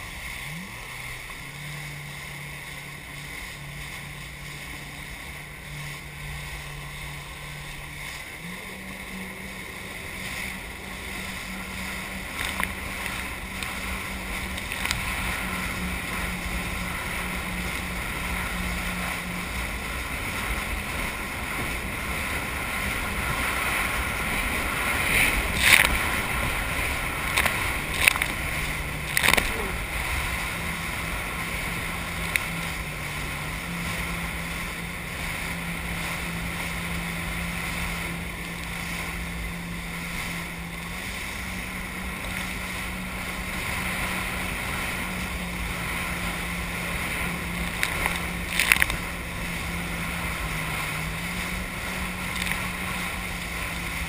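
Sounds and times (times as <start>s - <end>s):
jet ski engine drone: 0.0s - 54.0s
rushing spray and water: 0.0s - 54.0s
sharp water splashes: 0.0s - 54.0s.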